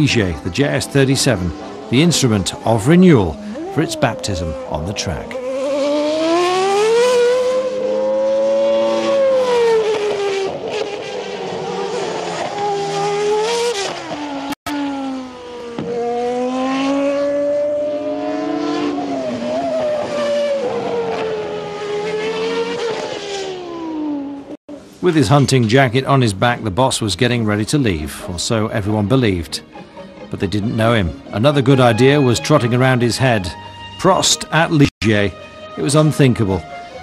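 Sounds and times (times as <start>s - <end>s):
racing car engine revving: 0.9s - 24.6s.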